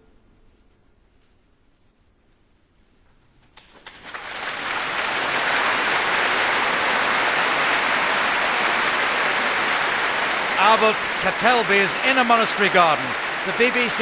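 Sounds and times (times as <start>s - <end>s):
audience applauding: 3.6s - 14.0s.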